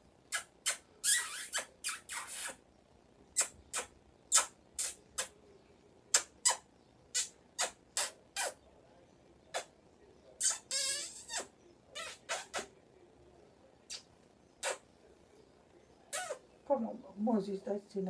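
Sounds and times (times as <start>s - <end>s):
kissing smacks: 0.3s - 2.6s, 3.4s - 5.4s, 6.1s - 8.6s, 9.5s - 9.7s, 10.4s - 12.7s, 13.9s - 14.8s, 16.1s - 16.4s.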